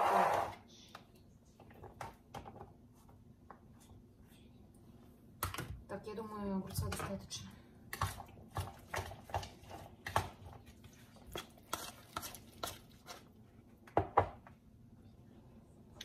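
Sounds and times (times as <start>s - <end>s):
spoon stirring in plastic bowl: 6.6s - 13.9s.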